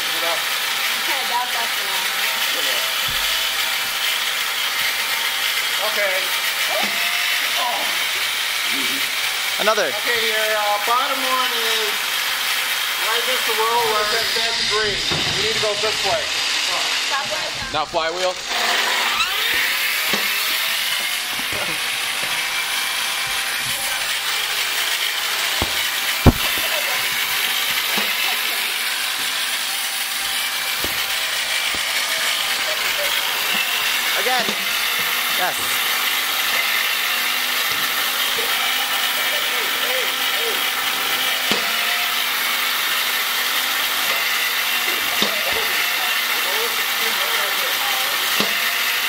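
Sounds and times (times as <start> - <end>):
flywheel motors whining: 0.0 - 49.0
sharp knock of ball firing: 25.6 - 26.8
light knocks: 25.6 - 28.1.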